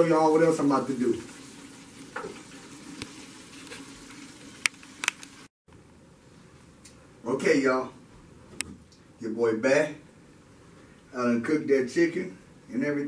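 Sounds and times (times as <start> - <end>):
oil sizzling while deep-frying: 0.0 - 5.5.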